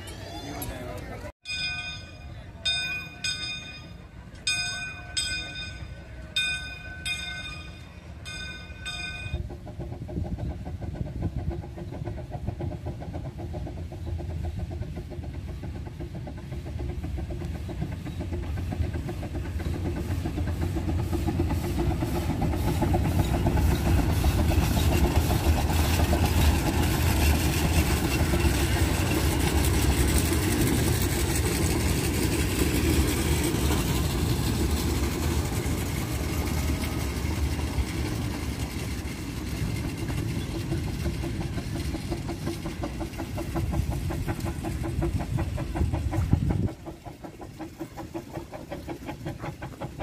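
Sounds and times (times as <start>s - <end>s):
steam locomotive bell ringing: 0.0s - 9.5s
steam train clattering along rails: 0.0s - 50.0s.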